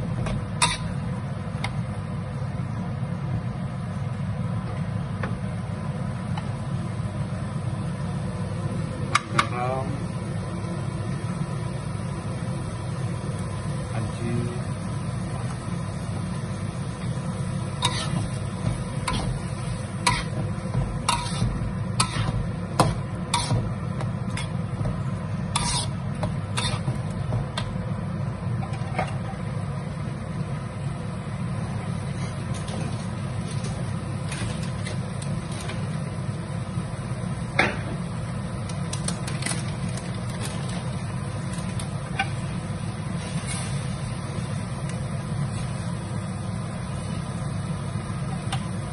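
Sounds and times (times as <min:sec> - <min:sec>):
steady low hum: 0:00.0 - 0:48.9
metal spatula scraping wok: 0:00.6 - 0:01.0, 0:17.8 - 0:23.7, 0:25.5 - 0:27.0.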